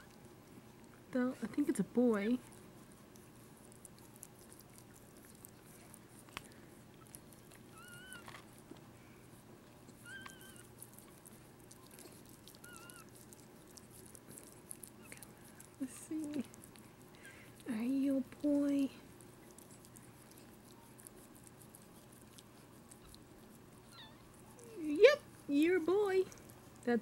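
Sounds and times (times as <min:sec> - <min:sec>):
dog licking wet clicks: 0:02.4 - 0:07.8, 0:09.7 - 0:17.7
puppy squeaking: 0:07.0 - 0:08.3, 0:10.0 - 0:10.8, 0:11.7 - 0:13.2, 0:23.8 - 0:24.9.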